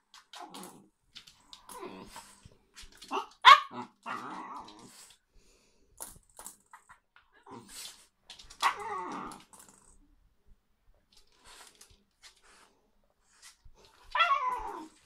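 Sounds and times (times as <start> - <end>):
dog crying in play: 14.1 - 15.0.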